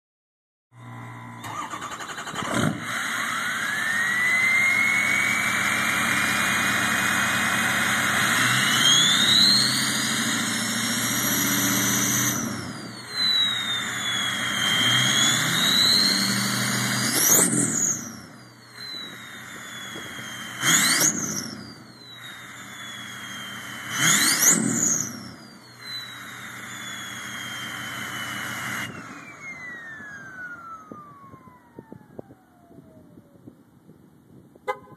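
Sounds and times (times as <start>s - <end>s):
diesel truck engine revving: 0.8s - 32.9s
turbo whistle: 7.1s - 31.7s.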